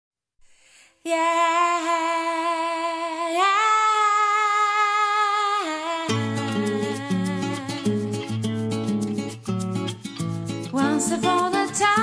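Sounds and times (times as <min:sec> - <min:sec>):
woman singing wordless notes: 0:01.0 - 0:08.1, 0:10.7 - 0:12.0
pop band with acoustic guitar: 0:05.6 - 0:12.0.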